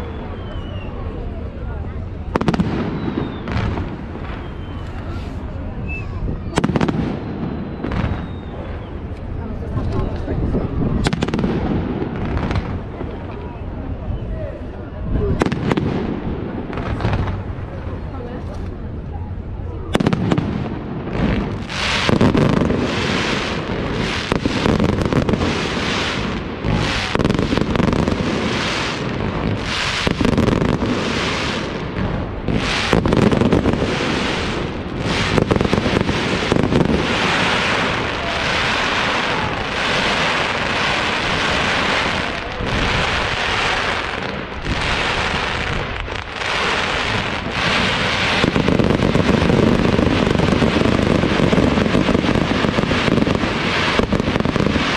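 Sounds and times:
fireworks bangs and crackle: 0.0s - 54.9s.

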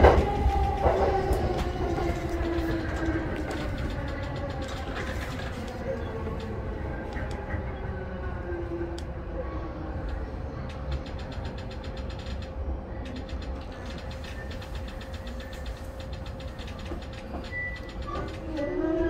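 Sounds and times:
constant hum: 0.0s - 19.0s
train rumbling: 0.0s - 19.0s
faint rapid ticks: 10.1s - 18.7s.

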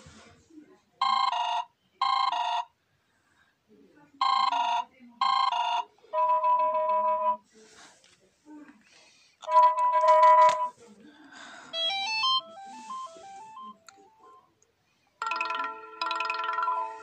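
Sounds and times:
phone ringtone chimes: 4.2s - 7.4s, 9.5s - 10.7s, 11.7s - 14.4s, 15.2s - 17.0s.

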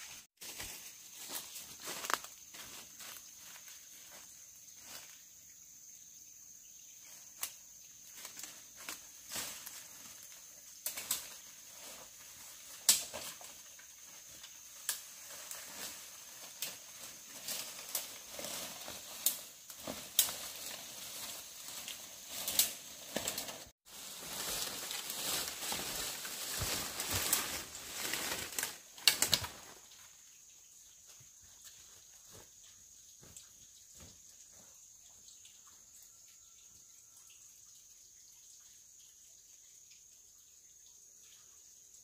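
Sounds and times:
high insect drone: 0.0s - 42.0s
rustling: 14.5s - 29.7s.

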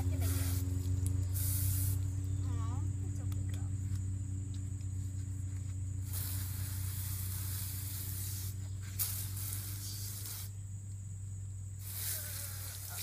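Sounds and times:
hose nozzle spraying water: 0.0s - 2.1s, 6.0s - 10.6s, 11.8s - 13.0s
steady low hum: 0.0s - 13.0s.

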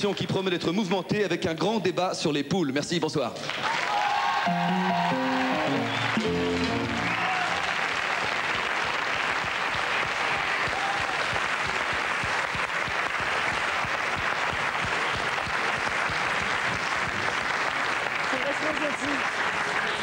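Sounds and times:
audience applauding: 3.4s - 20.0s
music notes: 4.5s - 7.2s.

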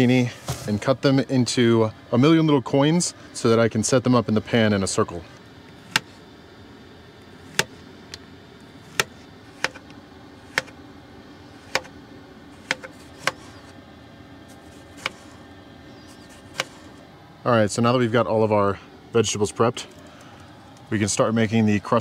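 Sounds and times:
steady low hum: 0.0s - 22.0s
knife tapping cutting board: 9.0s - 9.8s, 10.5s - 10.7s, 11.6s - 11.9s, 12.6s - 13.5s.

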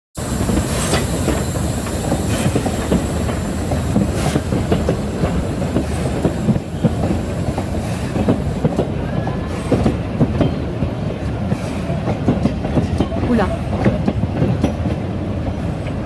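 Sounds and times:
train wheels clattering on track: 0.2s - 16.0s.

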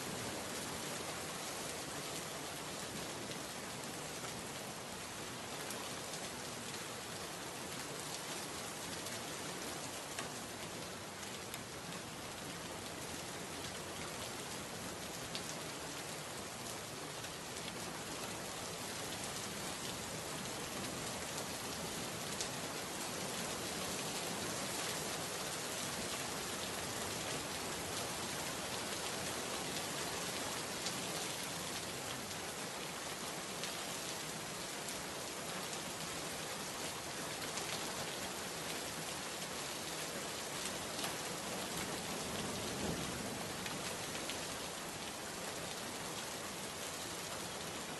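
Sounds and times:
steady rain hiss: 0.0s - 47.9s
faint raindrop ticks: 10.0s - 12.1s.

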